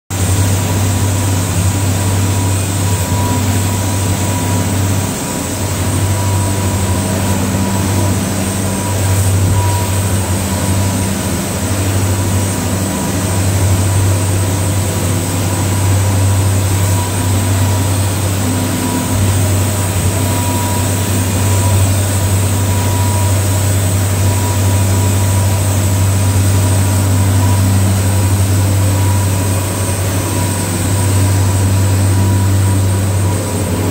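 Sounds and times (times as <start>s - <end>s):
rush of wind and water: 0.1s - 33.9s
boat engines droning: 0.2s - 33.9s
faint steady whine: 0.2s - 33.9s.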